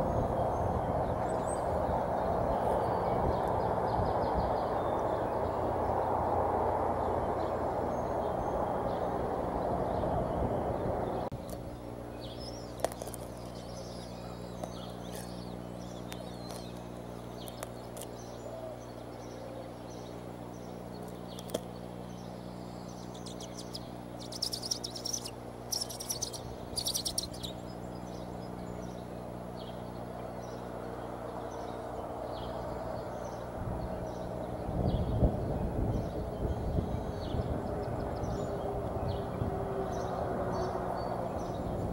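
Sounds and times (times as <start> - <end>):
steady low hum: 0.0 - 41.9
eagle chicks peeping: 11.3 - 41.9.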